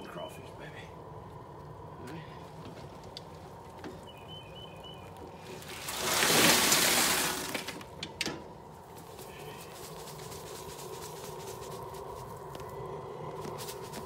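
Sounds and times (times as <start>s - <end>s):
crawfish pouring down steel chute: 5.4s - 7.8s, 9.4s - 12.2s.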